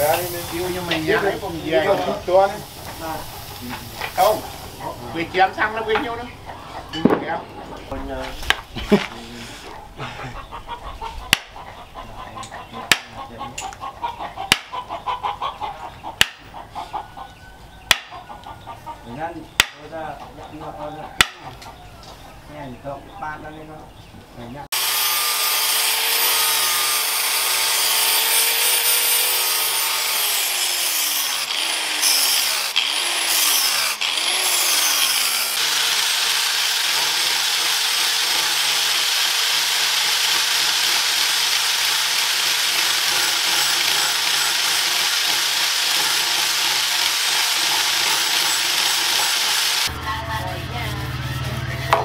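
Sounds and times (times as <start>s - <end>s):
angle grinder grinding metal: 0.0s - 6.1s, 24.7s - 52.0s.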